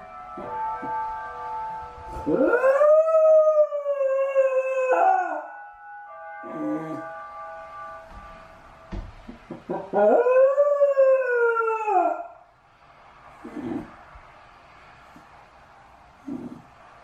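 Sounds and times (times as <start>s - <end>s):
dog howling: 2.2s - 5.5s, 9.7s - 12.4s.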